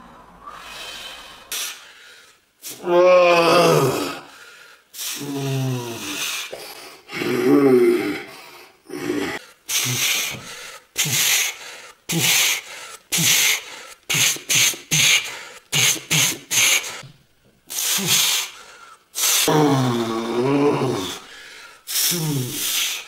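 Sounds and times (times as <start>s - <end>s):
man grunting: 2.8s - 4.3s, 7.1s - 8.3s, 8.9s - 10.1s, 19.4s - 21.2s.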